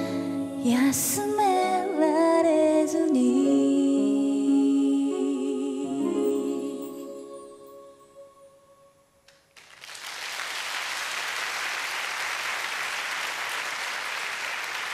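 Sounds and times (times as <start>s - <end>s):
audience applause: 9.6s - 14.9s.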